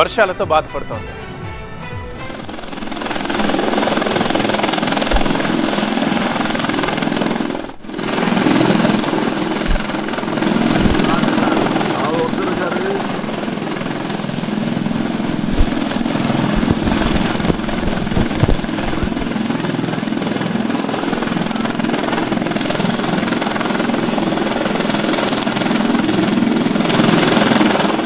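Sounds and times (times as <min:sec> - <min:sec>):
helicopter rotor chop: 0:02.1 - 0:28.0
brief low thumps: 0:04.7 - 0:07.9, 0:09.6 - 0:11.1.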